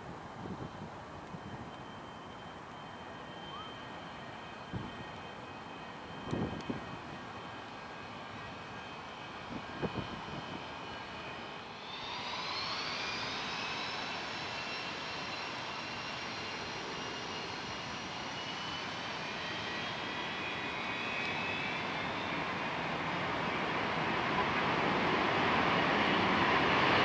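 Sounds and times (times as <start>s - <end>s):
jet engines whining: 1.2s - 27.0s.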